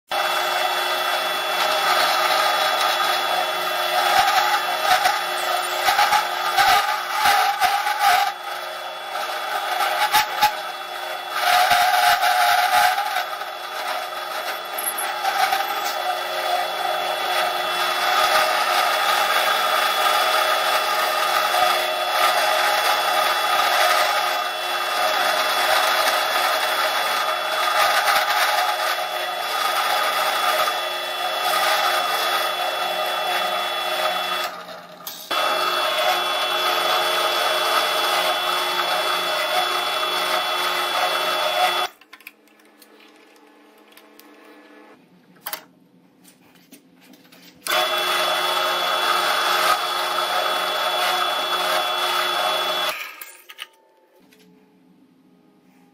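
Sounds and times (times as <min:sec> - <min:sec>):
drill press milling plastic: 0:00.1 - 0:42.0, 0:47.6 - 0:53.2.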